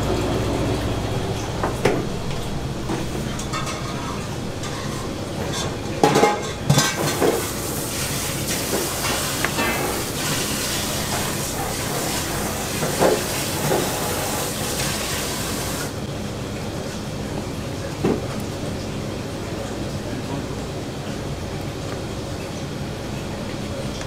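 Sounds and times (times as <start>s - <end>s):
kitchen background hiss: 1.5s - 16.0s.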